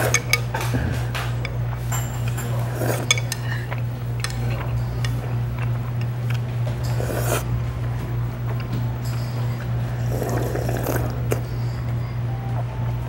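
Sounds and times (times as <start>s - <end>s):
chopsticks clicking on bowl: 0.0s - 7.4s
low hum: 0.0s - 13.0s
noodles slurped: 2.5s - 7.6s, 9.4s - 11.5s.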